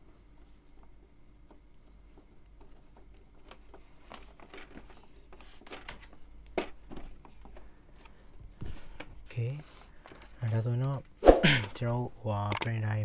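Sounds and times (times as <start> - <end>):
plastic printer housing clicks: 12.5 - 12.7.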